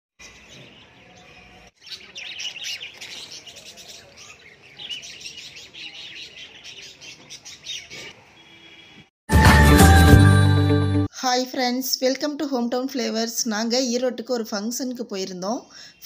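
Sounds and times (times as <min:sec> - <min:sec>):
budgerigars chattering: 0:01.3 - 0:09.0.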